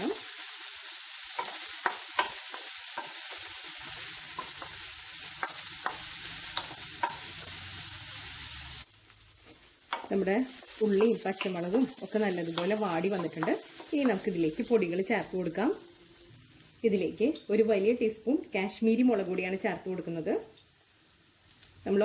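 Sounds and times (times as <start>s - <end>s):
onions sizzling in oil: 0.0s - 22.0s
spatula scraping and tapping pan: 1.3s - 7.6s, 9.4s - 14.4s.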